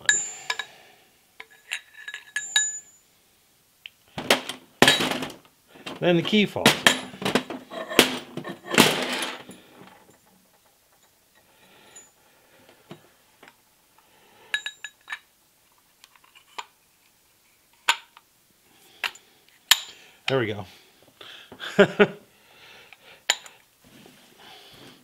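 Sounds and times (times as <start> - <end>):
steel parts knocking and clinking: 0.0 - 0.7, 1.4 - 3.0, 4.2 - 12.1, 14.5 - 15.3, 19.0 - 19.9, 23.3 - 23.6.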